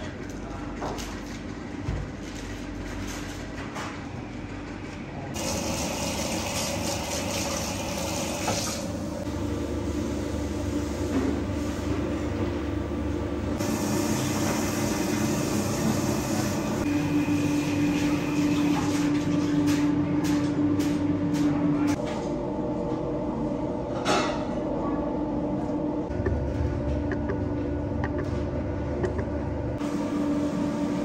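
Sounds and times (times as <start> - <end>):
machinery hum and hiss: 0.0 - 23.8
low steady hum: 22.1 - 30.2.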